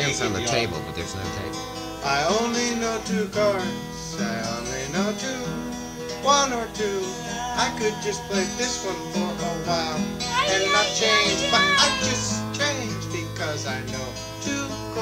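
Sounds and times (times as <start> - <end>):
strummed acoustic guitar: 0.0 - 15.0
person singing: 6.2 - 15.0.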